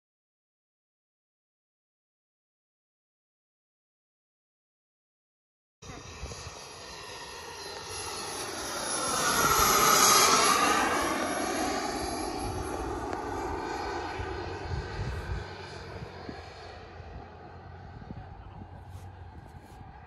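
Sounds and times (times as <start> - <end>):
model jet engine whine fly-by: 5.8 - 20.0.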